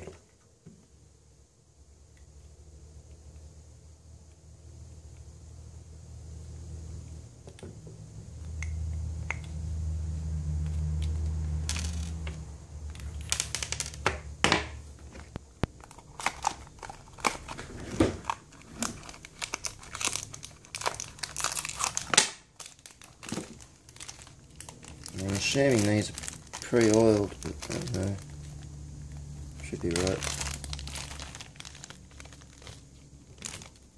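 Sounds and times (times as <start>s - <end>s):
plastic packet crinkling: 12.9s - 14.0s, 15.7s - 33.9s.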